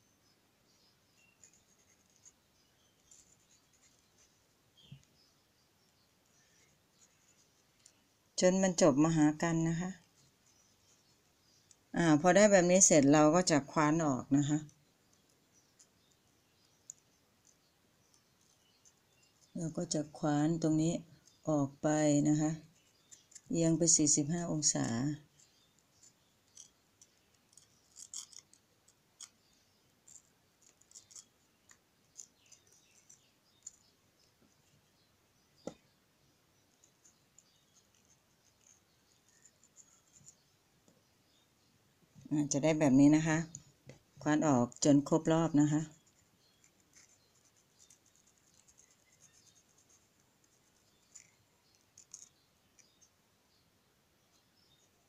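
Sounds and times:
knife carving watermelon: 25.4 - 33.9.

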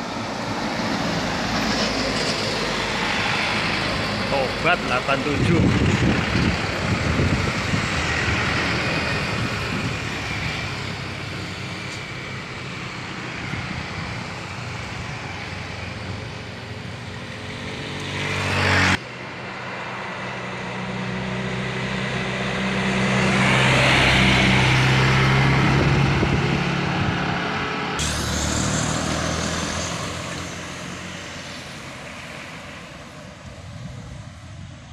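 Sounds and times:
diesel trucks driving past: 0.0 - 34.9.

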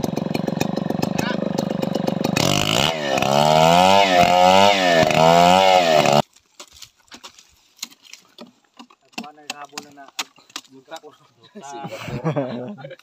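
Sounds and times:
chainsaw cutting wood: 0.0 - 6.2.

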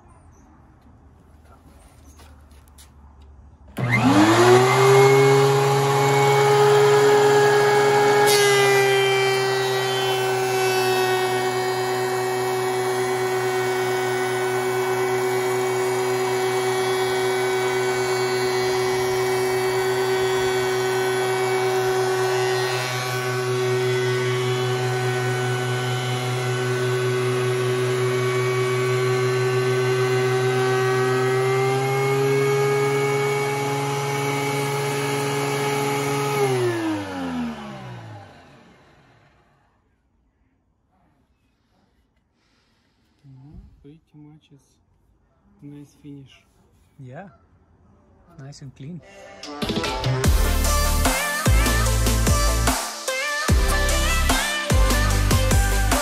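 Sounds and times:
thickness planer running: 3.7 - 39.7, 50.2 - 56.0.

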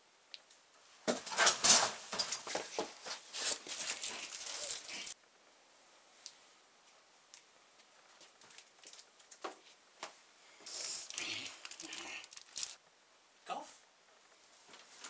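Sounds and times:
rustling and clattering clutter: 1.1 - 5.2.

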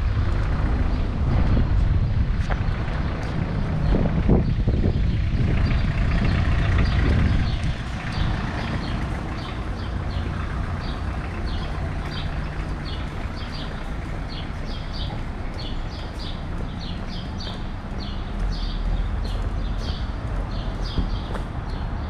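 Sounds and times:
steady low traffic hum: 0.0 - 22.0
vehicle rumbling past: 0.0 - 22.0
bird chirping: 5.6 - 22.0.

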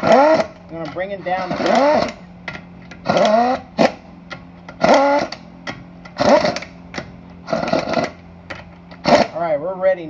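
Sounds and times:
pneumatic impact wrench bursts: 0.0 - 0.6, 1.3 - 2.3, 3.0 - 4.1, 4.7 - 5.4, 6.1 - 8.2, 8.9 - 9.4.

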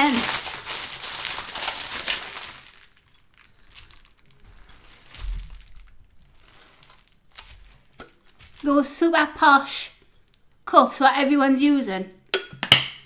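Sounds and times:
bubble wrap crinkling: 0.0 - 9.2.

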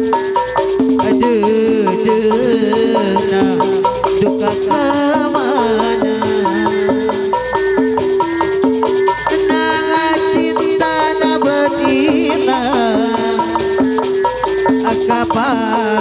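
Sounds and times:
drum beats: 0.0 - 16.0
metallophone melody: 0.0 - 16.0
sliding melodic line: 0.0 - 16.0.

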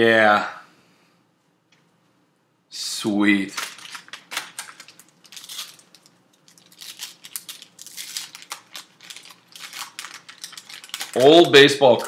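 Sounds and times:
wax paper wrapper crinkling: 3.4 - 12.0.

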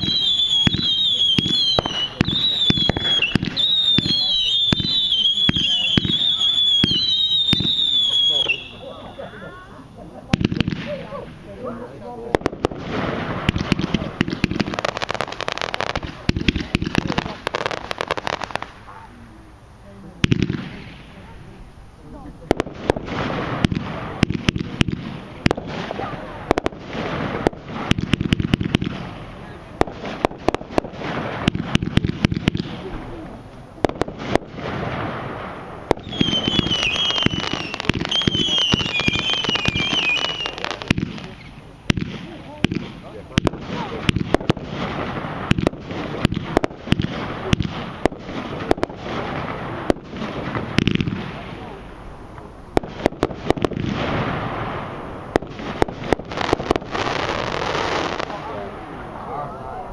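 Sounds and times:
firework bangs: 0.0 - 19.1, 20.2 - 59.4
firework crackle: 0.0 - 59.9
steady rush of noise: 32.5 - 59.9.

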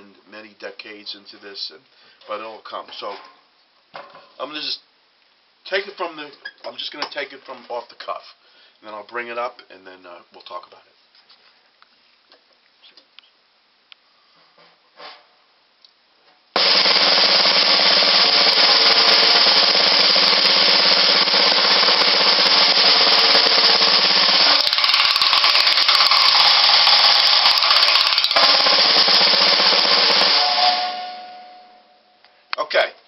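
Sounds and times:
snare drum roll: 16.6 - 31.4.

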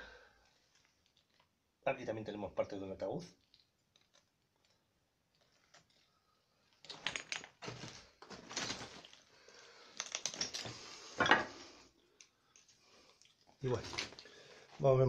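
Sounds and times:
footsteps crunching on rubble: 6.8 - 9.3.

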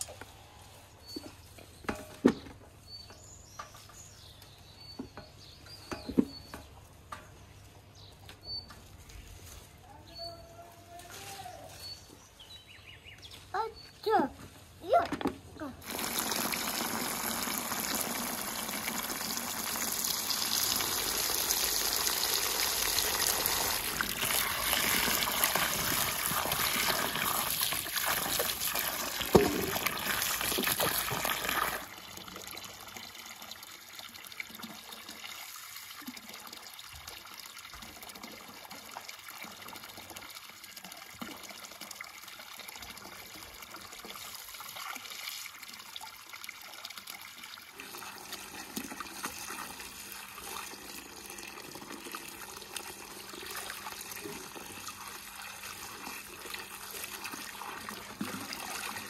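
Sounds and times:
water from hose pouring into basin: 15.8 - 59.0.

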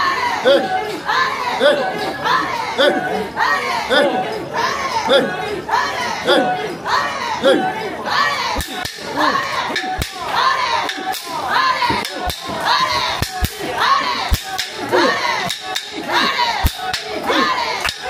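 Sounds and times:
crowd chanting rhythmically: 0.0 - 18.0.

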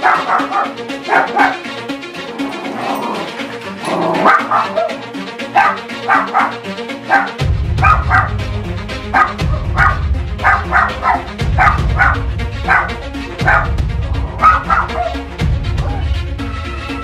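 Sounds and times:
small dog barking: 0.0 - 1.7, 4.2 - 8.3, 9.1 - 13.8, 14.4 - 15.2
background music: 0.0 - 17.0.

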